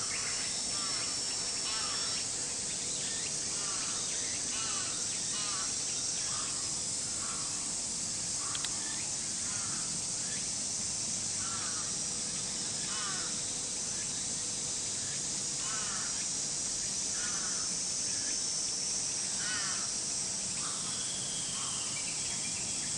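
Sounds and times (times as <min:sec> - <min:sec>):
high-pitched insect drone: 0:00.0 - 0:22.9
crows cawing: 0:00.8 - 0:02.1, 0:03.6 - 0:07.6, 0:09.5 - 0:09.9, 0:11.4 - 0:12.0, 0:12.9 - 0:13.3, 0:15.6 - 0:16.2, 0:17.2 - 0:17.8, 0:19.4 - 0:19.9, 0:20.6 - 0:20.9
sharp click: 0:08.5 - 0:08.8.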